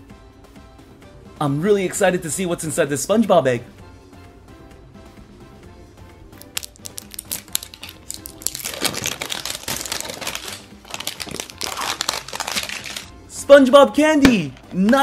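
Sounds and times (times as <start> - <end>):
light background music: 0.0 - 15.0
plastic egg clicking open: 6.4 - 8.7
candy wrappers crinkling: 6.4 - 13.1.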